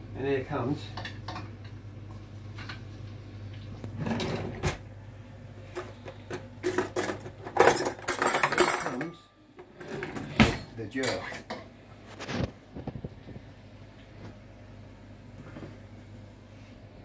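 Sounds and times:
steady low hum: 0.0 - 17.0
pots and pans clattering: 4.0 - 4.8, 5.7 - 11.7.

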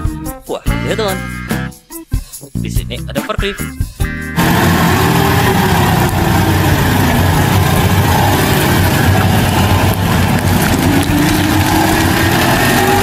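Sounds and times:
forklift engine running: 4.4 - 13.0
rising whine: 4.4 - 13.0.

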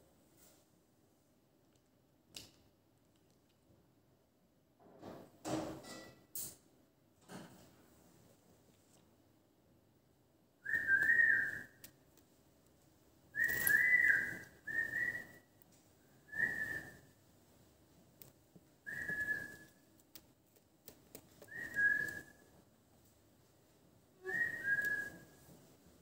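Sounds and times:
short whistles: 10.6 - 11.8, 13.4 - 15.6, 16.2 - 17.1, 18.9 - 19.8, 21.5 - 22.5, 24.2 - 25.5.

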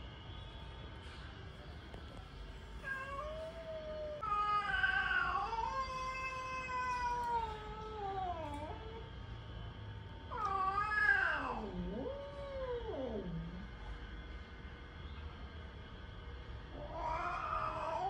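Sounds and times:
cats yowling: 2.8 - 9.1, 10.3 - 13.7, 16.7 - 18.0.

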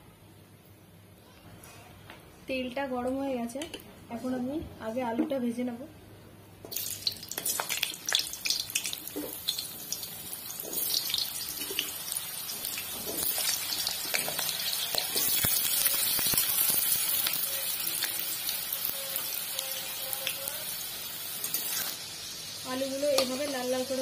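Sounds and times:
oil sizzling: 6.7 - 24.0.

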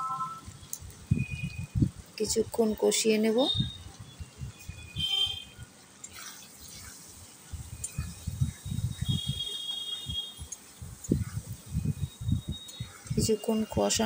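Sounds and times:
light sizzling: 3.9 - 14.0.

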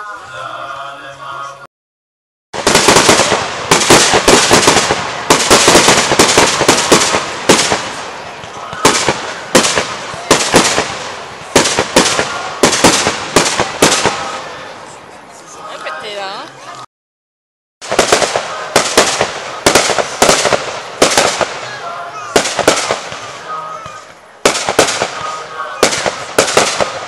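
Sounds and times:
fireworks crackling and banging: 2.6 - 15.0, 17.8 - 27.0.

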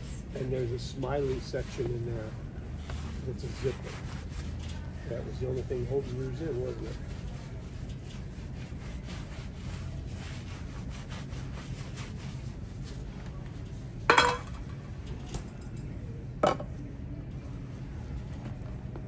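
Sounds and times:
low steady hum: 0.0 - 19.0
brush rubbing on leather shoe: 0.4 - 13.1.

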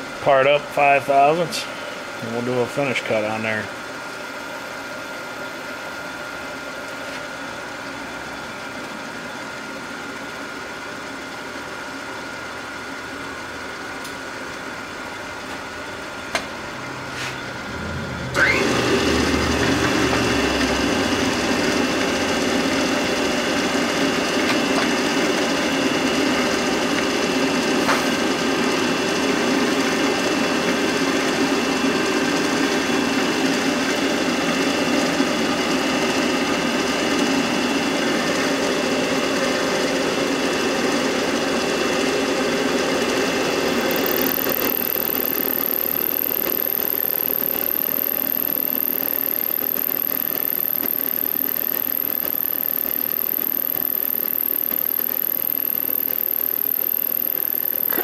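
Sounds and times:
machine hum: 13.0 - 33.1, 43.0 - 58.0
milling cutter whining: 16.3 - 26.8, 43.7 - 58.0.

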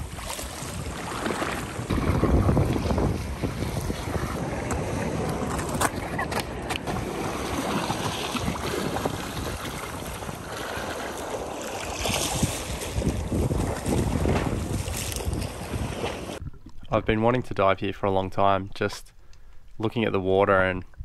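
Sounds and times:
wind buffeting microphone: 0.0 - 11.0, 11.9 - 16.6
water lapping against rock: 0.0 - 17.0.

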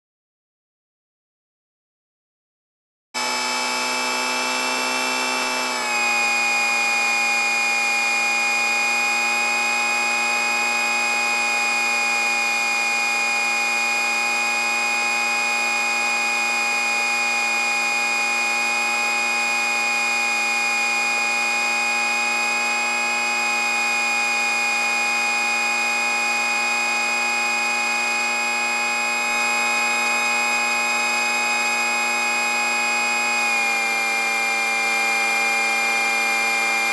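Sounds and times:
aircraft propeller buzzing whine: 3.2 - 25.1, 25.8 - 36.9.

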